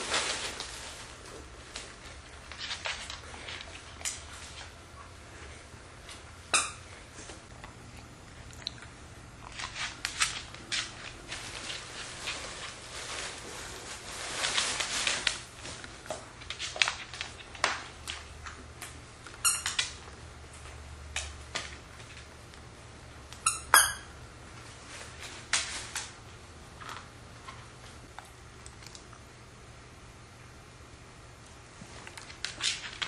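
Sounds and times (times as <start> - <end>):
paper bag and tissue rustling: 0.0 - 4.8, 9.5 - 18.3, 24.5 - 26.2
plush toy squeaker squeaking: 23.5 - 24.1.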